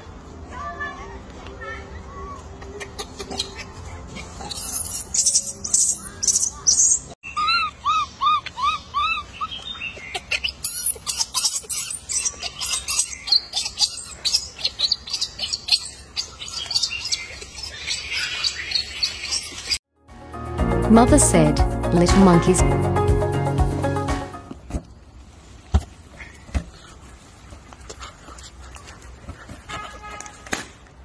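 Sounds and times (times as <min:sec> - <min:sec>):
birds chirping: 0:01.9 - 0:19.8.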